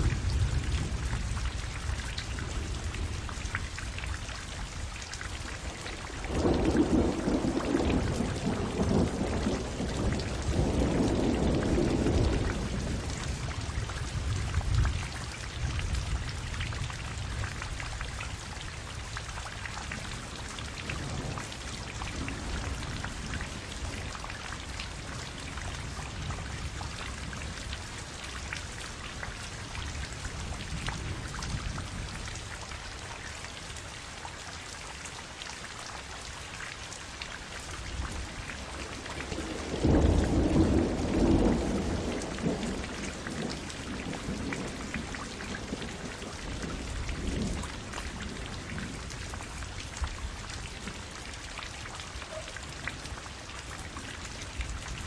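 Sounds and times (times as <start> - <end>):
steady rain falling: 0.0 - 55.0.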